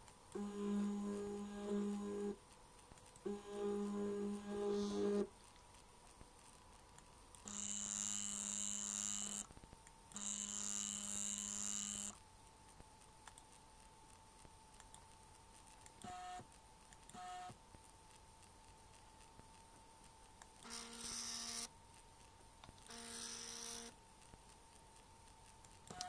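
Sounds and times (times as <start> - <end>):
stepper motor whine: 0.4 - 2.3.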